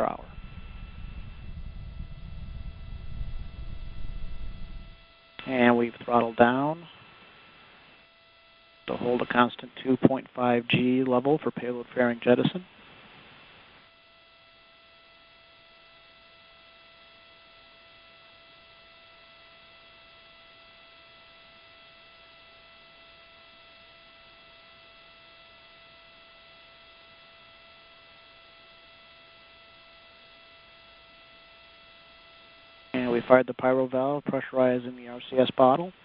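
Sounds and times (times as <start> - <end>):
low hiss: 0.0 - 13.9, 32.4 - 36.0
faint hum of fixed tones: 0.0 - 36.0.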